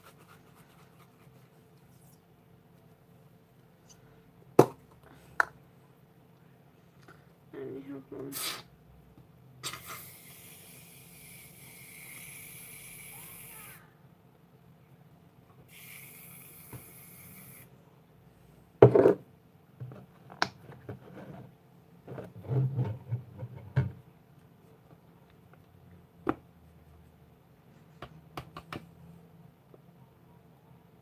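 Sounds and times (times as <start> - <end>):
aerosol can spraying: 9.6 - 13.8, 15.7 - 17.7.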